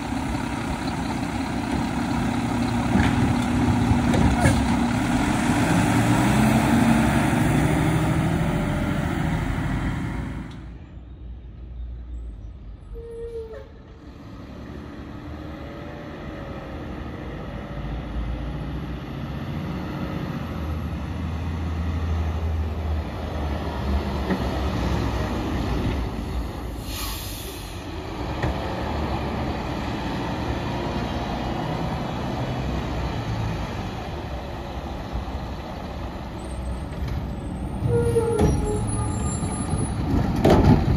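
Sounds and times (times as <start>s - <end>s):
garbage truck engine rumble: 0.0s - 10.9s, 15.5s - 40.9s
air brakes hissing: 26.7s - 28.0s.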